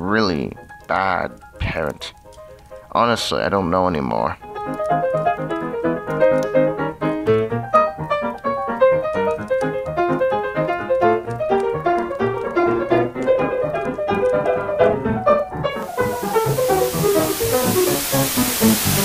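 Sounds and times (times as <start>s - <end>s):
piano music: 0.0s - 19.0s
hiss: 15.8s - 19.0s.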